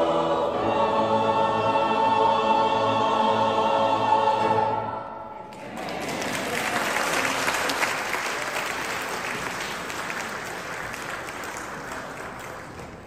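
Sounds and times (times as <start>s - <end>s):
audience clapping in a hall: 5.4s - 13.0s.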